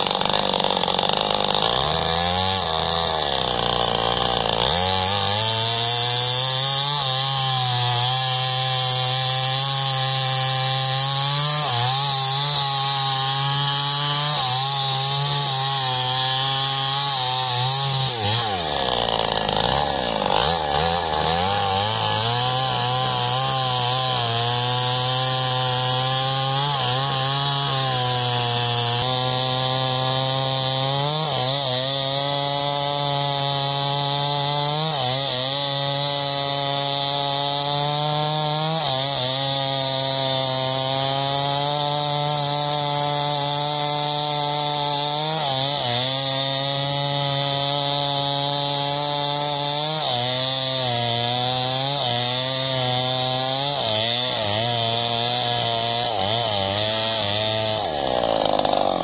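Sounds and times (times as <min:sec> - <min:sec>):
chainsaw sawing into tree: 0:00.0 - 0:59.0.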